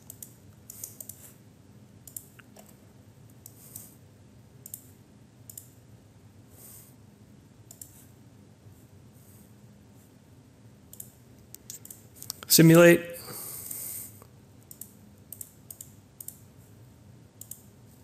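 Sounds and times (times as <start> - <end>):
mouse and keyboard clicks: 0.0 - 1.2, 7.7 - 8.0, 14.6 - 16.4, 17.4 - 17.7
room hiss: 2.8 - 18.0.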